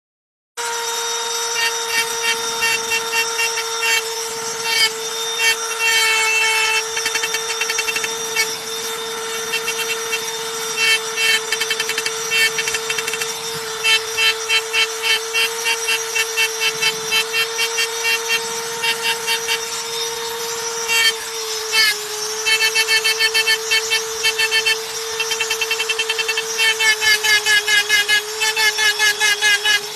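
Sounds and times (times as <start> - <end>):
rotary tool whine: 0.6 - 29.9
bit scratching board: 1.5 - 8.6, 9.5 - 19.6.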